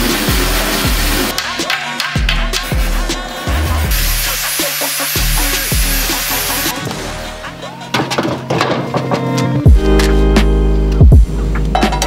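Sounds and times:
music with heavy bass beat: 0:00.0 - 0:07.9, 0:09.2 - 0:12.0
angle grinder cutting steel: 0:03.9 - 0:06.8.

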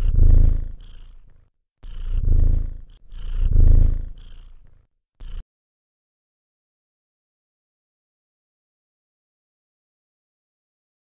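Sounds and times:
cat purring: 0:00.0 - 0:05.4.

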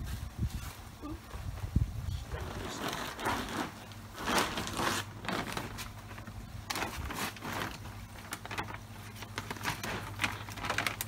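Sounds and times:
pond filter pumps humming: 0:00.8 - 0:11.0
plastic bags crackling: 0:02.2 - 0:11.0.

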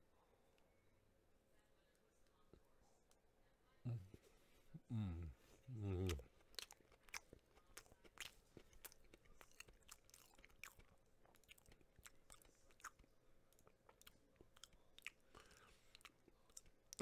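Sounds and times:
close chewing mouth clicks: 0:06.0 - 0:17.0.

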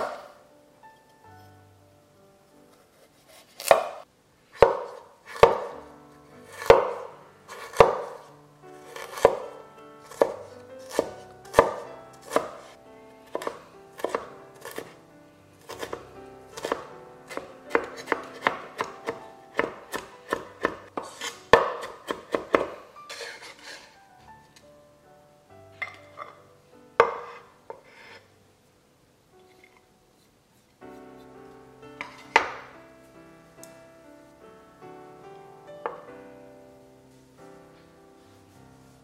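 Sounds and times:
cleaver chopping on wooden board: 0:03.6 - 0:04.0, 0:04.6 - 0:05.8, 0:06.5 - 0:07.0, 0:07.6 - 0:08.2, 0:09.0 - 0:09.5, 0:10.1 - 0:12.6, 0:13.3 - 0:14.9, 0:15.7 - 0:16.0, 0:16.6 - 0:22.8.

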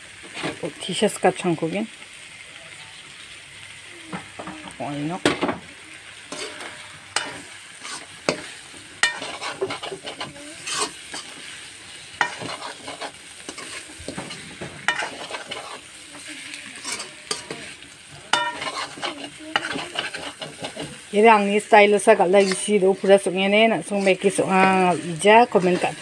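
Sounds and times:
food sizzling in a wok: 0:00.0 - 0:26.0
spatula scraping and clinking pan: 0:06.3 - 0:11.6, 0:12.2 - 0:26.0.

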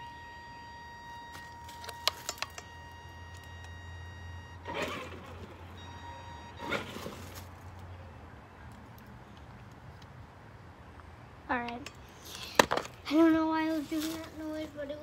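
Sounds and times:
high-pitched electric tone: 0:00.0 - 0:07.3
sharp clicks: 0:01.4 - 0:03.8.

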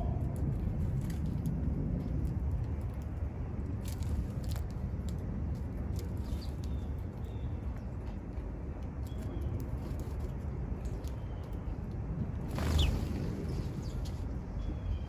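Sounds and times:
low outdoor rumble: 0:00.0 - 0:15.0
songbirds chirping: 0:12.5 - 0:15.0.

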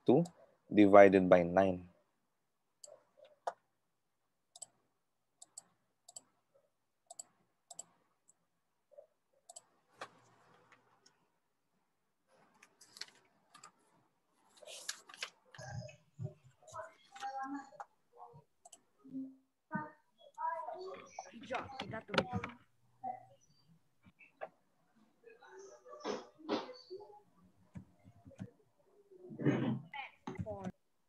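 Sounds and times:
faint irregular clicks and taps: 0:02.8 - 0:03.7, 0:05.4 - 0:06.3, 0:27.6 - 0:28.6.

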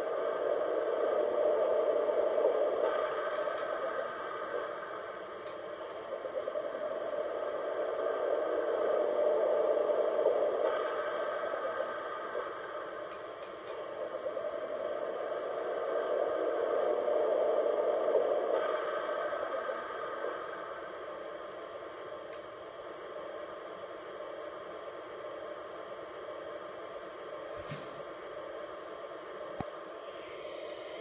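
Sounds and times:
subway train rushing noise: 0:00.0 - 0:20.8.

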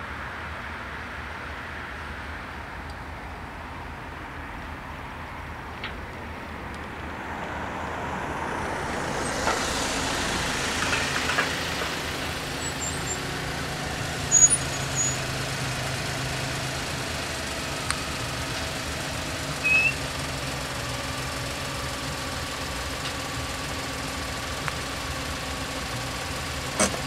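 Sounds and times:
van engine idling: 0:04.7 - 0:27.0
short high chirps: 0:19.6 - 0:20.0.

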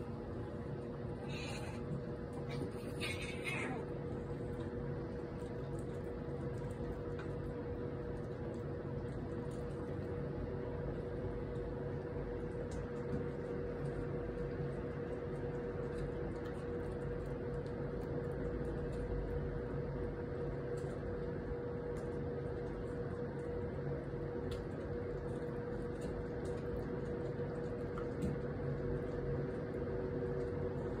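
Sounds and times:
steady mechanical hum: 0:00.0 - 0:31.0
faint ticks and rustles: 0:11.0 - 0:19.4, 0:20.6 - 0:31.0.

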